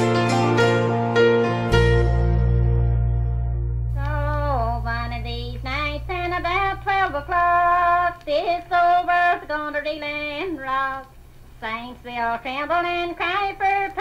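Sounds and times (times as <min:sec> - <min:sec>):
high voice singing held notes: 0:03.9 - 0:11.0.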